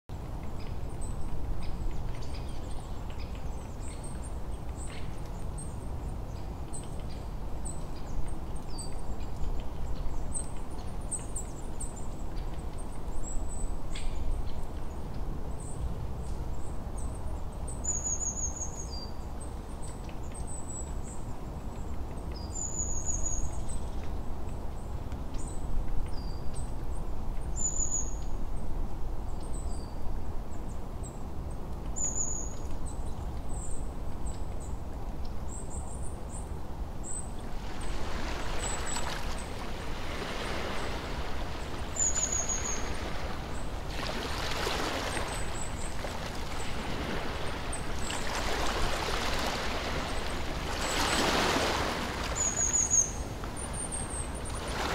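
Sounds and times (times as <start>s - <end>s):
small birds chirping: 31.9s - 54.9s
lake waves lapping: 37.5s - 53.0s, 54.4s - 54.9s.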